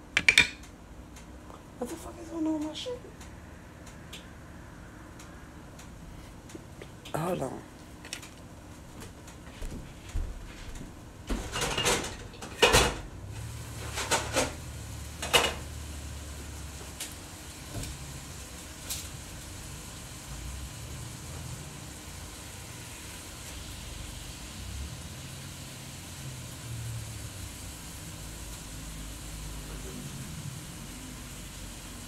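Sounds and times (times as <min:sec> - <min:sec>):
household knocks and clatters: 0:00.2 - 0:00.6, 0:11.3 - 0:13.0.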